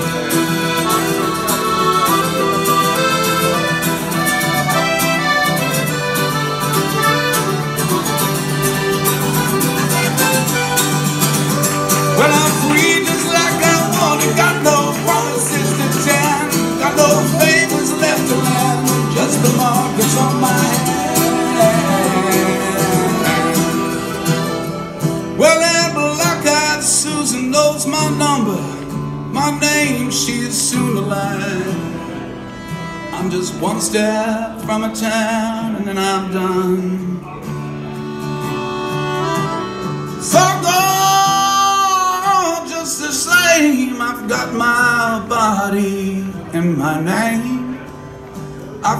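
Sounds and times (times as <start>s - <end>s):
mandolin melody: 0.0s - 33.3s, 37.6s - 41.5s
accordion melody: 0.0s - 34.9s, 37.6s - 45.6s
acoustic guitar strumming: 0.0s - 48.9s.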